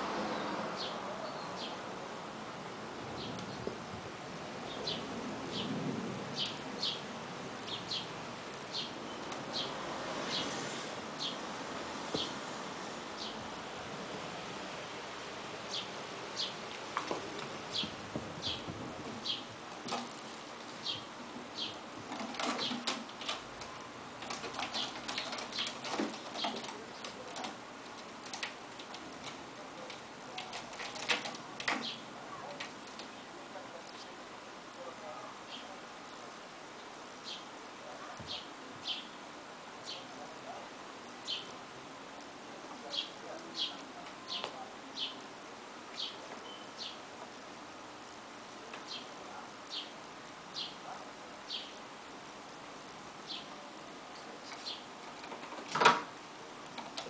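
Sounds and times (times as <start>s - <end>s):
steady hiss: 0.0s - 57.0s
claws scratching on sisal posts: 16.4s - 33.2s
small bird chirping: 17.7s - 19.5s, 41.2s - 41.6s, 45.9s - 47.0s.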